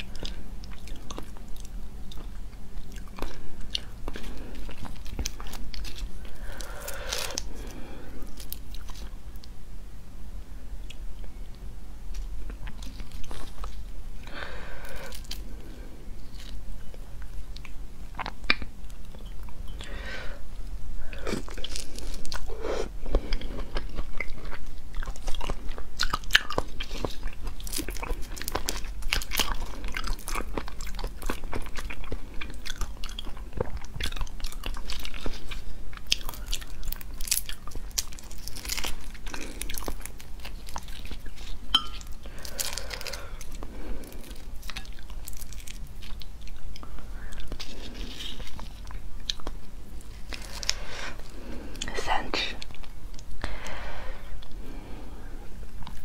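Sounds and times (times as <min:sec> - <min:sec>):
person chewing prawns: 0:00.0 - 0:09.5, 0:12.1 - 0:20.4, 0:21.0 - 0:56.0
prawn shells crackling: 0:25.1 - 0:52.9.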